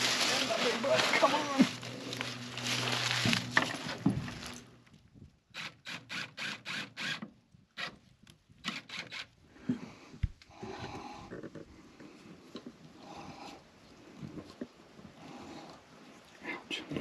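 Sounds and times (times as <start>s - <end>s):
cordless drill into wood: 5.5s - 7.2s, 8.6s - 9.3s.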